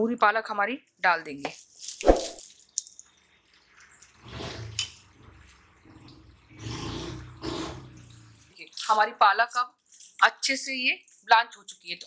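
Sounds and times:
water bubbling in a saucepan: 0:02.8 - 0:08.7.

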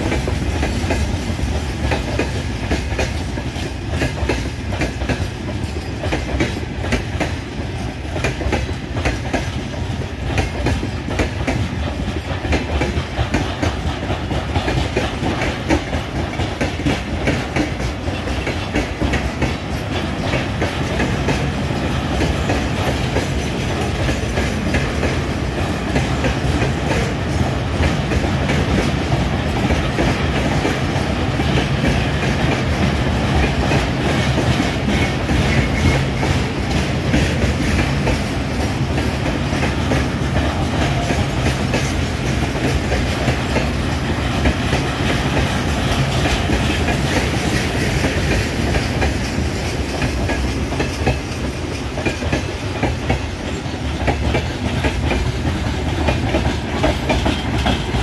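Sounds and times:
clickety-clack of rail joints: 0:00.0 - 0:58.0
train wheels rumbling on rails: 0:00.0 - 0:58.0.

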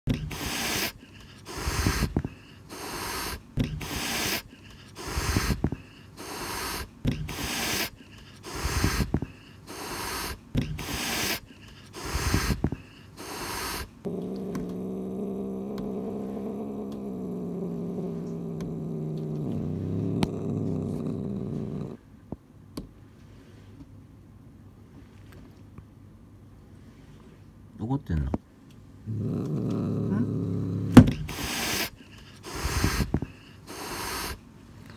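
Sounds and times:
cat growling low: 0:00.1 - 0:22.0, 0:29.0 - 0:34.4
cat hissing: 0:00.1 - 0:22.0, 0:29.1 - 0:34.5.

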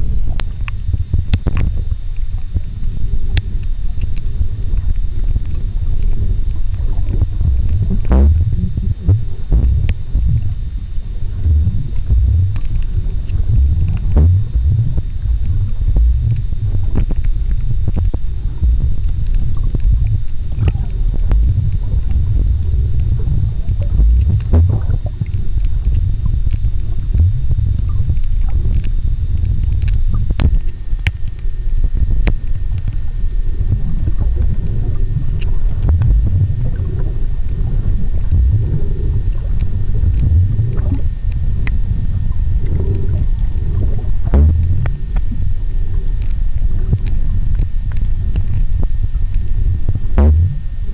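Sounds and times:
underwater water rumble: 0:00.0 - 0:50.9.

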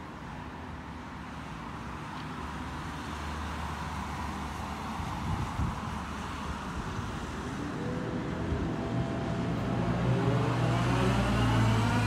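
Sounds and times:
vehicle engine speeding up: 0:07.5 - 0:12.0.

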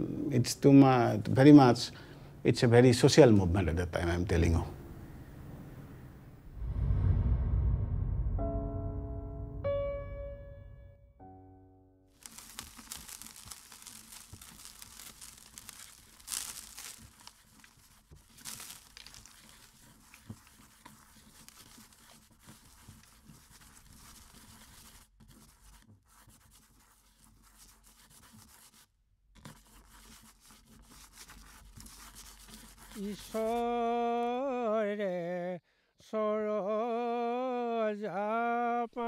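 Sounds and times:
sand swishes: 0:12.2 - 0:22.0
sand rustling on glass: 0:12.2 - 0:25.6.

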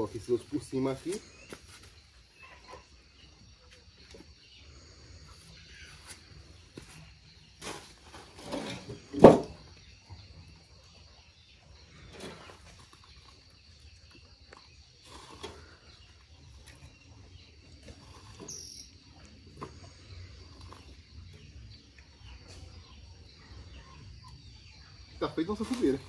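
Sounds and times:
insects chirring: 0:00.0 - 0:26.0
firewood logs knocking: 0:09.1 - 0:09.6.

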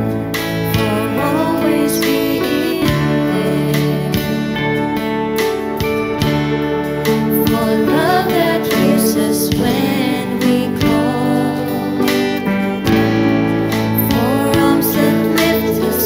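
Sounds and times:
live band playing slow song: 0:00.0 - 0:16.0
women singing: 0:00.7 - 0:04.9, 0:07.2 - 0:13.2, 0:13.8 - 0:16.0.

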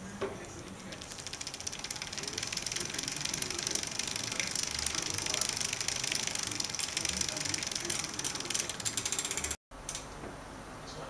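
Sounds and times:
bicycle chain ticking whir: 0:00.4 - 0:09.6.

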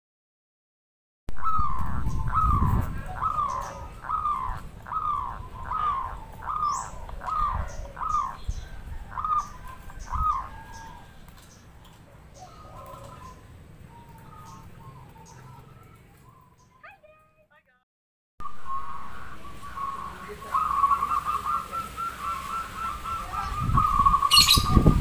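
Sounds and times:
dove cooing: 0:01.4 - 0:16.6, 0:18.4 - 0:25.0.

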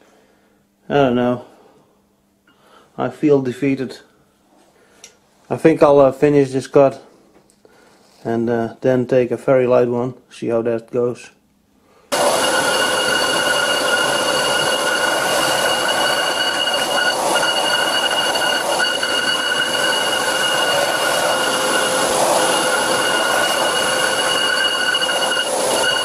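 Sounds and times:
high-pitched chatter squeal: 0:12.1 - 0:26.0
lathe cutting brake disc: 0:12.1 - 0:26.0.

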